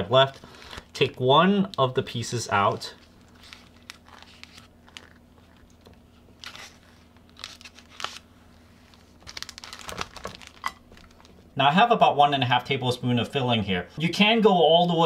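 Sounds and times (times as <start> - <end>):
spring roll wrappers crinkling: 2.8 - 11.5.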